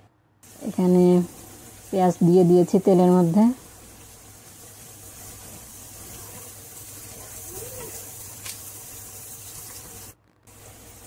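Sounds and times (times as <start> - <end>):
onions sizzling in oil: 0.4 - 11.0.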